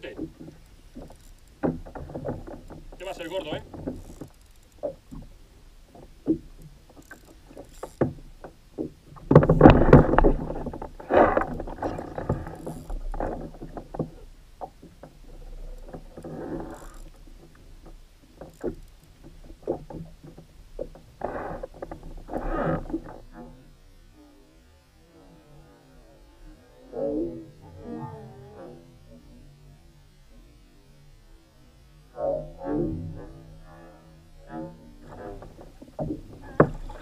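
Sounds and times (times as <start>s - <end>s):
spinning reel and rod handling: 0.5s - 5.2s, 6.5s - 8.5s, 11.4s - 13.6s, 15.5s - 19.2s
bumps against kayak hull: 7.5s - 15.2s.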